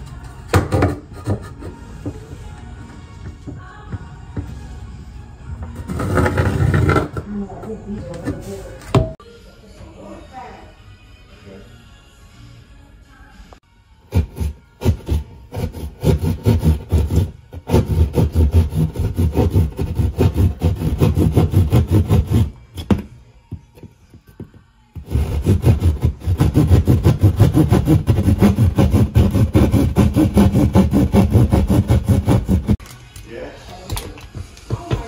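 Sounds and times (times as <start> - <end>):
jab saw cutting wall: 14.1 - 22.6, 25.0 - 32.8.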